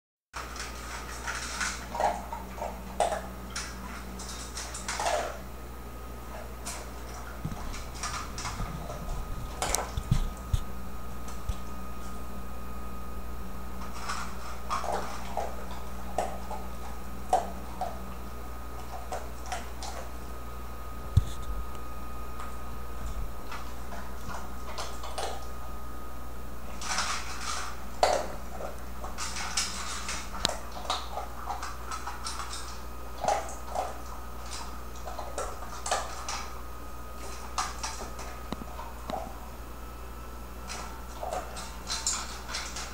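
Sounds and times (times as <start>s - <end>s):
dog crunching food: 0.4s - 5.5s, 6.2s - 12.2s, 13.8s - 18.1s, 18.7s - 20.2s, 21.1s - 25.8s, 26.6s - 39.6s, 40.5s - 42.9s.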